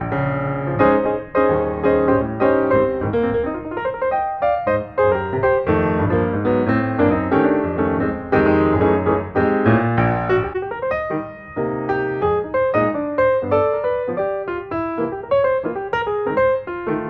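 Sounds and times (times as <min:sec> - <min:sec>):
piano music: 0:00.0 - 0:17.0.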